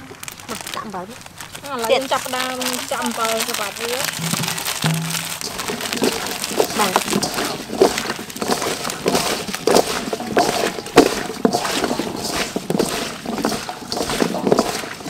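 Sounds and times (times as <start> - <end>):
wet cactus pieces crunching in bowl: 0.0 - 15.0.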